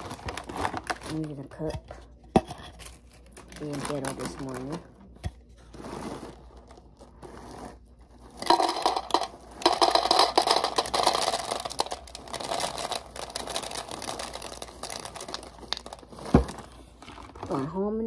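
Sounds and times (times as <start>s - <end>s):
plastic bag crinkling: 0.0s - 1.6s, 2.7s - 17.8s
cereal rattling into plastic cup: 2.8s - 4.8s, 5.8s - 17.5s.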